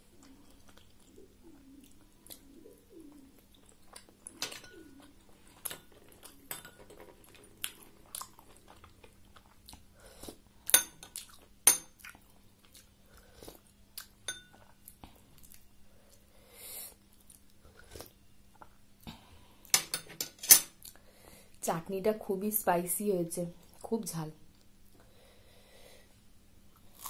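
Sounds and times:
faint steady hum: 0:00.0 - 0:27.0
chewing and wet mouth smacks: 0:00.2 - 0:02.5, 0:13.5 - 0:16.2
metal spoon clinking on glass bowl: 0:14.3 - 0:14.6.

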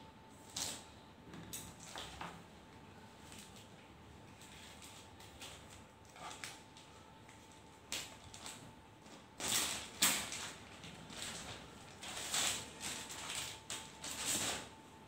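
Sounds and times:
plastic bag rustling and crinkling: 0:04.3 - 0:14.8.

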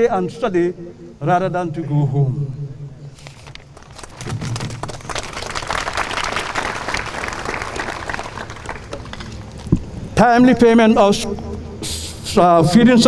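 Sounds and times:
audience applauding: 0:03.7 - 0:09.6.

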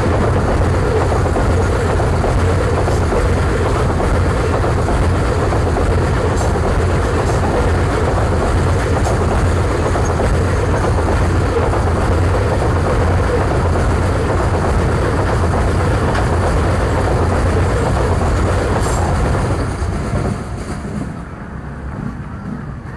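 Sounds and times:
freight wagons rolling on rails: 0:00.0 - 0:22.9.

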